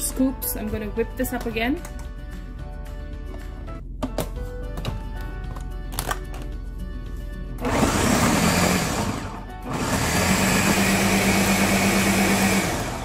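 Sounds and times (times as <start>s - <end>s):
light background music: 0.0s - 13.0s
blender motor running: 7.6s - 13.0s.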